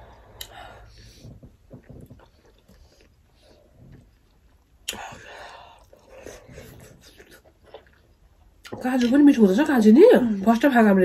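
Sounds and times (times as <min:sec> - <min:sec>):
person chewing: 0:00.3 - 0:09.1.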